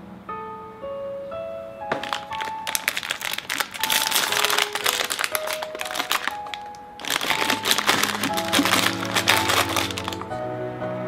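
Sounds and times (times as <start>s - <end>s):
plastic packet crinkling: 1.9s - 10.3s.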